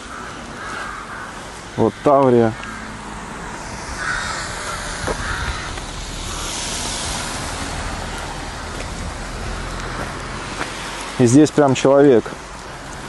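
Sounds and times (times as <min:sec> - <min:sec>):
even hiss: 0:01.6 - 0:11.8
low rumble: 0:02.6 - 0:10.5.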